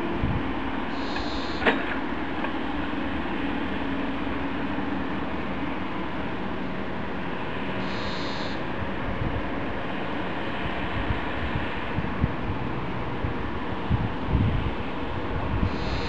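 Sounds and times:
diesel engine running: 0.0s - 16.0s.

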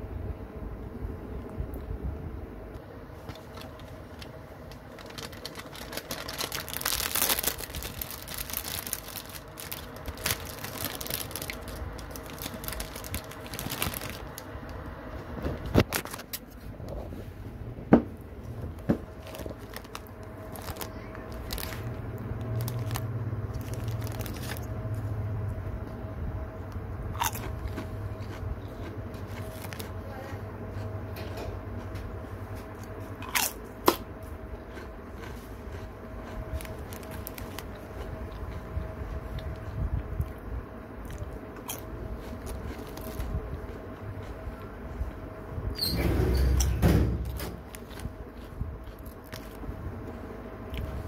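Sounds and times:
chips rustling in bag: 3.2s - 14.8s, 19.1s - 25.0s, 29.2s - 30.0s, 34.7s - 38.7s, 41.6s - 43.4s
chip packet crinkling: 3.2s - 14.9s, 15.5s - 16.4s, 19.1s - 25.0s, 27.2s - 30.0s, 34.7s - 40.4s, 41.0s - 44.4s, 47.2s - 49.6s.

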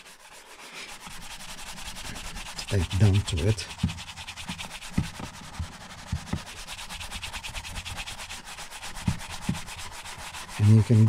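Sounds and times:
rubbing leather: 0.0s - 11.0s
soft knocks: 3.7s - 6.5s.

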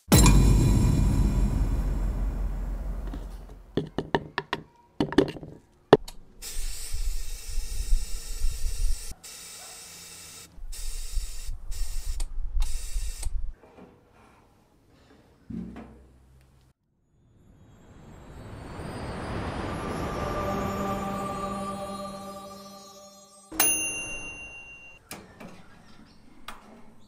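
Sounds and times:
spray gun hissing: 6.4s - 13.2s.

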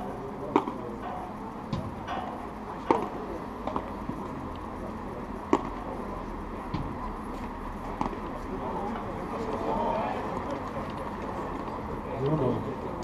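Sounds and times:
murmur of spectators: 0.0s - 13.0s
padel ball being hit: 2.9s - 3.1s.

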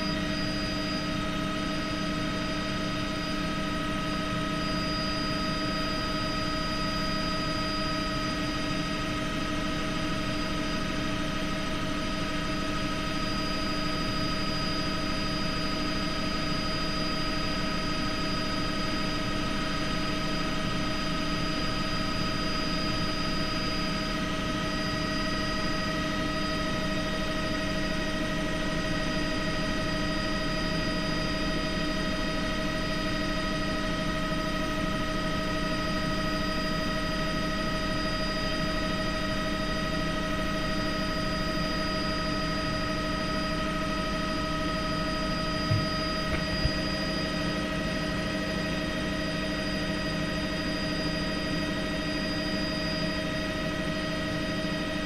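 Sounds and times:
helicopter engine and rotor drone: 0.0s - 55.0s
steady whining tones: 13.0s - 53.8s.

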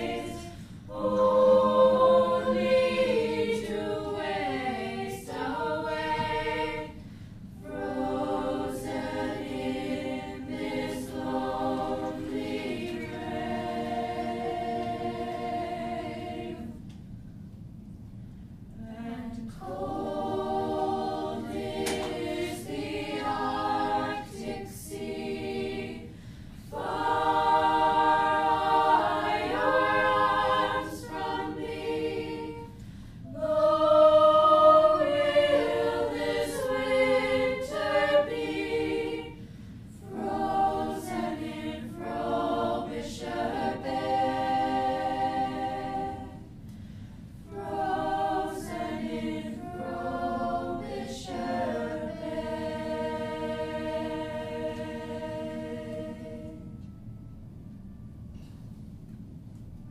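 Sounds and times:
choir singing in harmony: 0.0s - 17.5s, 18.7s - 59.9s
singers breathing: 0.5s - 0.9s, 7.0s - 7.6s, 26.1s - 26.7s, 32.7s - 33.4s, 39.4s - 40.0s, 46.6s - 47.4s.

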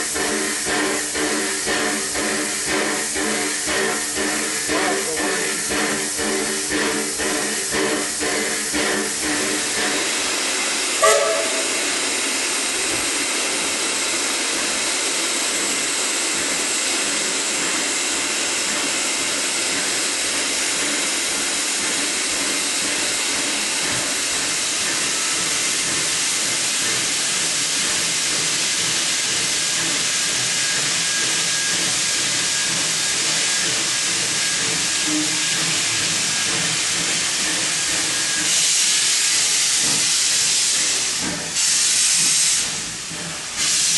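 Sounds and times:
steam locomotive hissing: 0.0s - 43.9s.

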